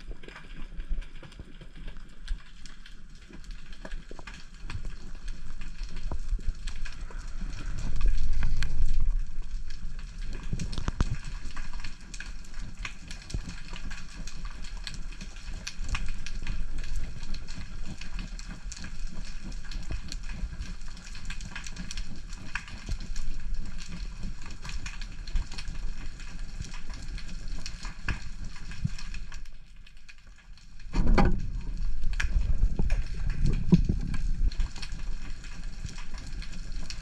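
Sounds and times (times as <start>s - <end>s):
crackle of tiny clicks: 0.0s - 37.0s
water rushing past microphone: 30.7s - 36.3s.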